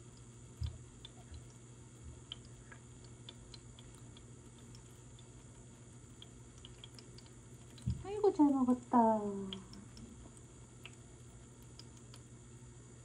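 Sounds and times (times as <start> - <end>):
kitten licking and chewing: 0.0 - 12.4
soft low thump: 7.8 - 8.1.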